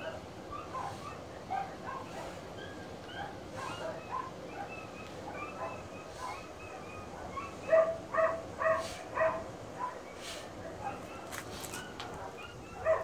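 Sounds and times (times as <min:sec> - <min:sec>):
dog whining: 0:00.0 - 0:10.1.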